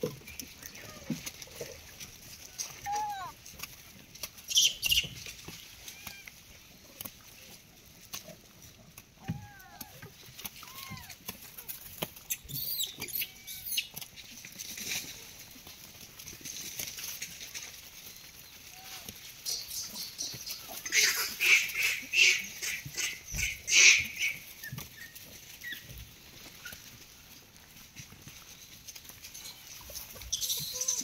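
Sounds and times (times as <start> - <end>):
faint clicks and rustling: 0.0 - 21.4, 24.2 - 31.0
monkey squealing: 30.3 - 31.0.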